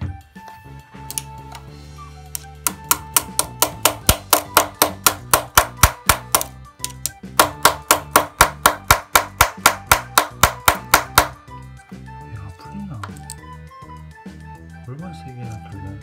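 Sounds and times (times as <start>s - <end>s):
pliers tapping screwdriver: 1.1s - 1.6s, 2.4s - 8.1s.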